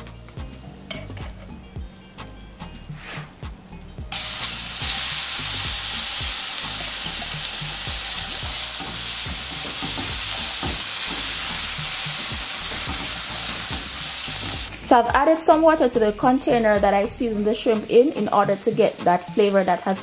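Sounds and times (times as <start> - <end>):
paste sizzling in hot oil: 4.1 - 14.8.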